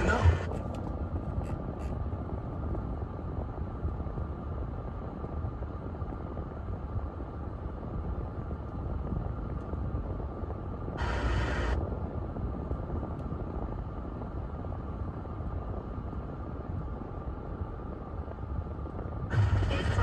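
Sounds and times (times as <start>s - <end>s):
radio tuning burst: 0.0s - 0.5s, 11.0s - 11.8s, 19.3s - 20.0s
radio static hiss: 0.0s - 0.6s, 11.0s - 11.9s, 19.2s - 20.0s
car cabin rumble: 8.3s - 13.6s, 17.7s - 20.0s.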